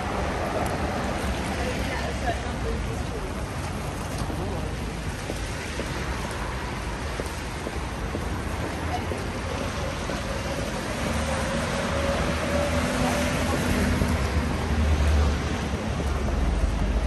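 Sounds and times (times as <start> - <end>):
traffic hiss on wet road: 0.0 - 17.0.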